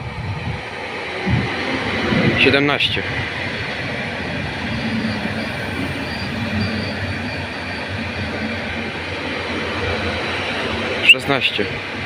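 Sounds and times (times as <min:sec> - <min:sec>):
train running rumble and motor hum: 0:00.0 - 0:12.0
train wheel squeal: 0:04.1 - 0:09.1.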